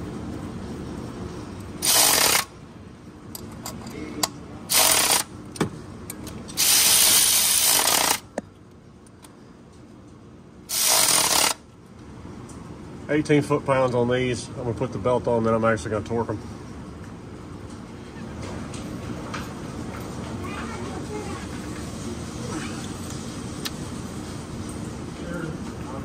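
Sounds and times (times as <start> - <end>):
cordless ratchet running: 1.8 - 2.5, 4.7 - 5.3, 6.6 - 8.3, 10.7 - 11.6.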